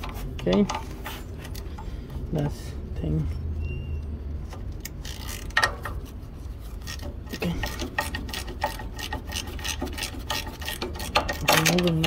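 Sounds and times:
metal scraping: 3.6 - 12.0
ratchet wrench clicking: 4.4 - 6.1, 6.7 - 12.0.

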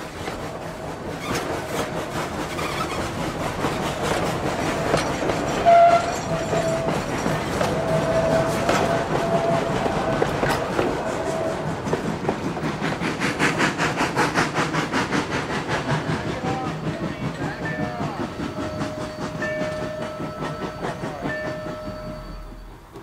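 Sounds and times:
steam locomotive chuffing: 0.0 - 23.0.

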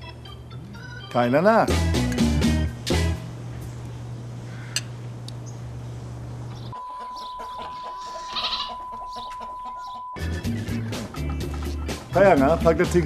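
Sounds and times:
low steady hum: 0.0 - 10.2.

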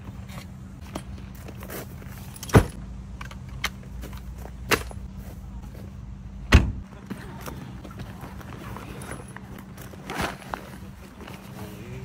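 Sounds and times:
car boot lid slamming: 6.5 - 6.8.

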